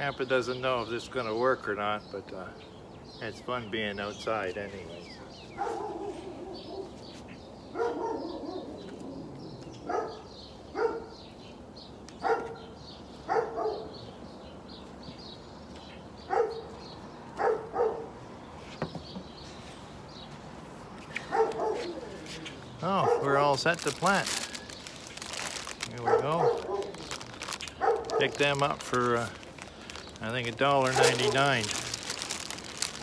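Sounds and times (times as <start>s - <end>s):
small birds chirping: 0.0s - 33.0s
dog barking: 5.6s - 7.0s, 7.7s - 8.7s, 9.8s - 11.2s, 12.2s - 12.7s, 13.3s - 13.9s, 16.3s - 16.7s, 17.4s - 18.1s, 21.2s - 22.1s, 22.9s - 23.4s, 26.0s - 27.0s, 27.8s - 28.4s, 30.9s - 31.4s.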